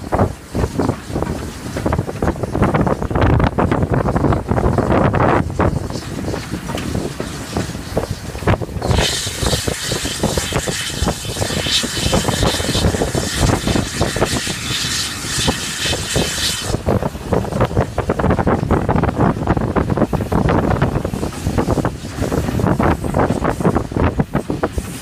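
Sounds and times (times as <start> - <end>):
steam train rumble: 0.0 - 25.0
wind buffeting microphone: 0.0 - 25.0
loud high hiss: 7.4 - 17.3.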